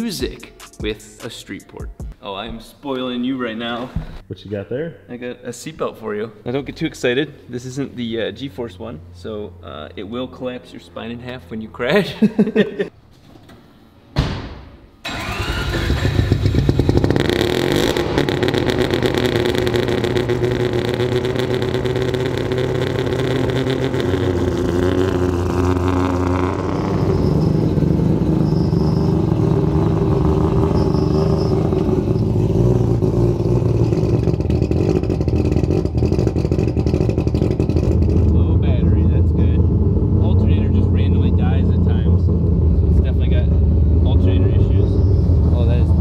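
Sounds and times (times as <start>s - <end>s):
rotary engine starting and idling: 15.0s - 46.0s.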